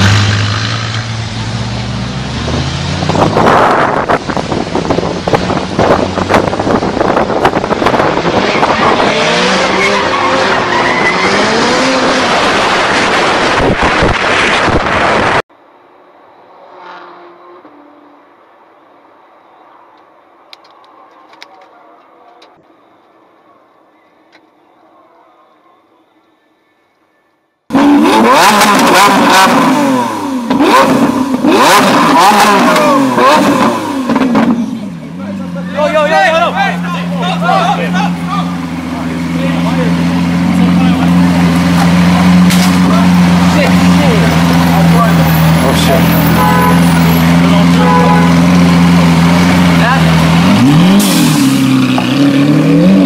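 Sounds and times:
car engine revving: 0.0s - 15.4s, 27.7s - 53.0s
tyres skidding: 0.0s - 15.4s, 27.7s - 53.0s
road and wind noise: 0.0s - 53.0s
exhaust cracks: 38.0s - 52.6s.

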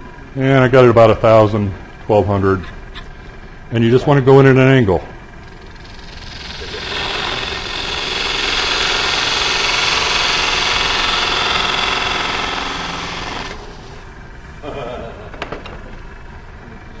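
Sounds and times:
wood lathe running: 5.3s - 14.4s
chisel cutting wood on lathe: 5.4s - 14.2s.

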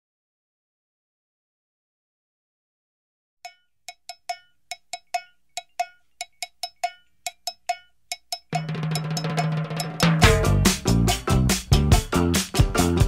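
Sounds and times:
pitched percussion hits: 3.5s - 13.0s
band with bass and drums: 8.7s - 13.0s.

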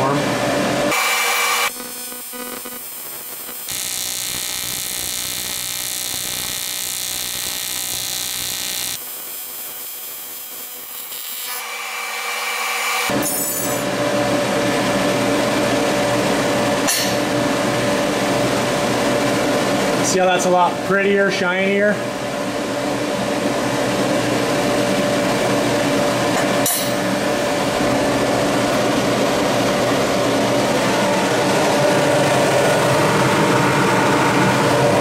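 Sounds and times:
cooling fan hum: 0.0s - 11.4s, 13.1s - 35.0s
welding arc buzzing and hissing: 0.9s - 13.9s.

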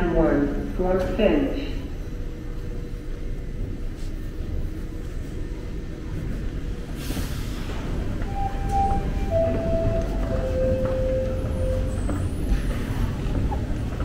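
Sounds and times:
low rumble of station machinery: 0.0s - 14.0s
two-note train door chime: 8.2s - 12.1s.

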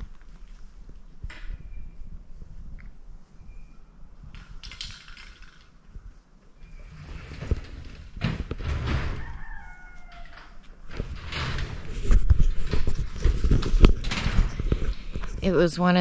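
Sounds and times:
rustling: 10.0s - 15.7s.

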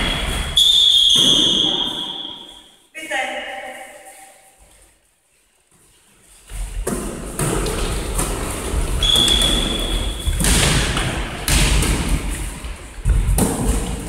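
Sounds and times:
volleyball struck by hands: 9.0s - 12.4s.

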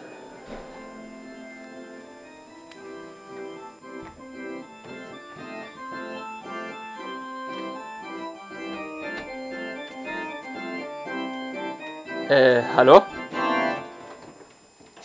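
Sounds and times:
organ playing simple melody: 0.0s - 14.6s.

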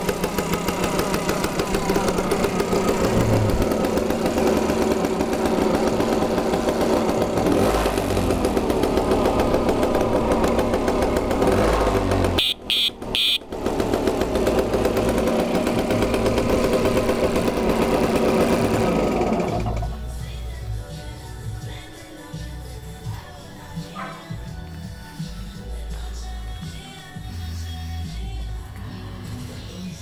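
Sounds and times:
two-stroke engine idling: 0.0s - 30.0s
short high-pitched beeps: 12.4s - 13.4s.

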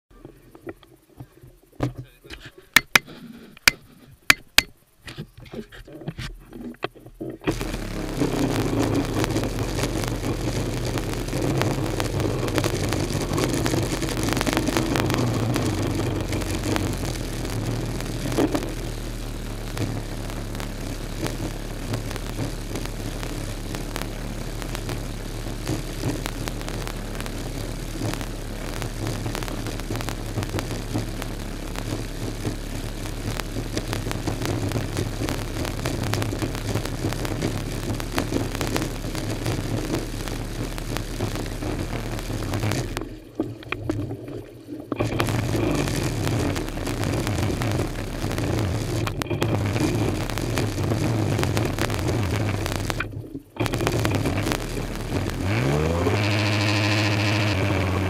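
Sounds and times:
knock: 2.8s - 3.1s
jet ski engine idling: 7.5s - 40.8s, 55.4s - 58.0s.

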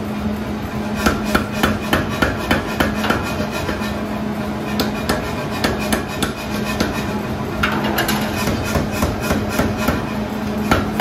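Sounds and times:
power hammer striking steel: 1.0s - 3.9s, 4.7s - 7.1s, 7.7s - 11.0s.

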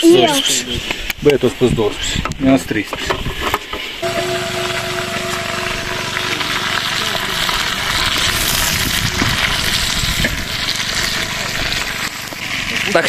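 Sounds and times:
steady hum: 4.0s - 12.7s
meat sizzling in a pot: 4.0s - 13.0s.

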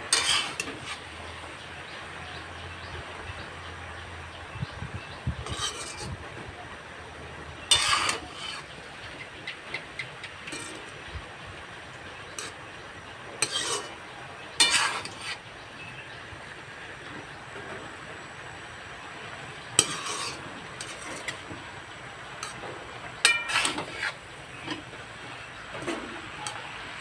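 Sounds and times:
metal spatula scraping wok: 0.0s - 1.6s, 5.2s - 6.3s, 7.6s - 8.9s, 10.2s - 11.1s, 12.3s - 16.0s, 19.4s - 21.6s, 22.3s - 26.9s
food sizzling: 0.1s - 2.2s, 7.1s - 9.0s, 9.6s - 15.5s, 18.3s - 27.0s.

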